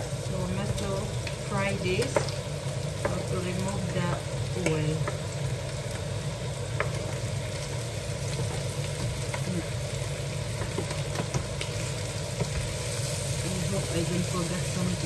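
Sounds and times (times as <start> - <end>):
meat sizzling in a frying pan: 0.0 - 15.0
wooden spoon knocking on pan: 3.0 - 3.3, 10.5 - 11.7.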